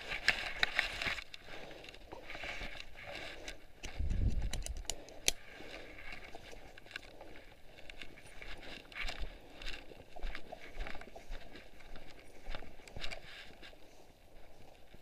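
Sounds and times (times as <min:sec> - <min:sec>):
footsteps through long grass: 0:00.0 - 0:04.3, 0:05.4 - 0:15.0
clothing and gear rustling: 0:00.0 - 0:15.0
sharp clicks: 0:03.8 - 0:05.4.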